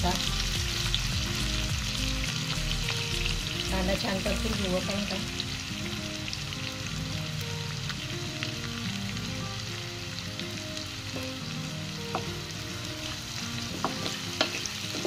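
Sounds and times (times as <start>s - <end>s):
onion sizzling in hot oil: 0.0s - 15.0s.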